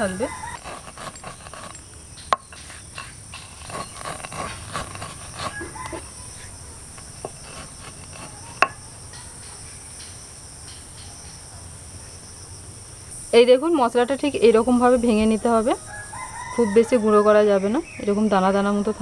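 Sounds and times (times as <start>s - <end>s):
stone roller crushing spices: 0.0s - 10.1s
insects chirring: 0.0s - 19.0s.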